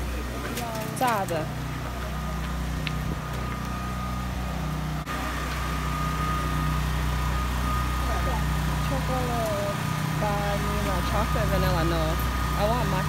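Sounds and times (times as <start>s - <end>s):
low mechanical hum: 0.0s - 13.0s
thin steady whine: 0.0s - 13.0s.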